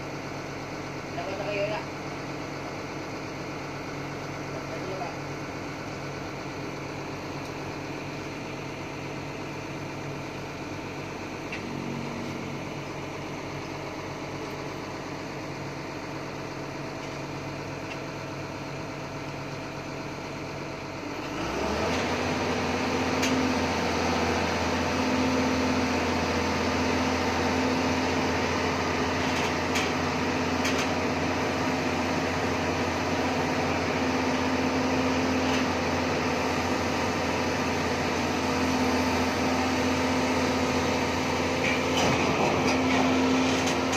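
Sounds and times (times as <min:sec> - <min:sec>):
excavator diesel engine: 0:00.0 - 0:43.9.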